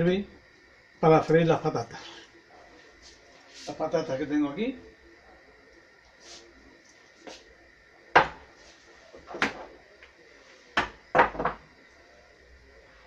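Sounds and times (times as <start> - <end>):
kitchenware knocks and clatters: 10.8 - 11.6.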